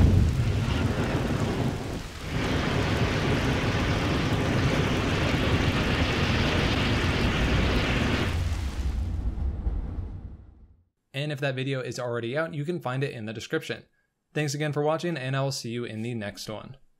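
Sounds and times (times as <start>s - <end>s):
jet of flame rushing: 0.0s - 10.6s.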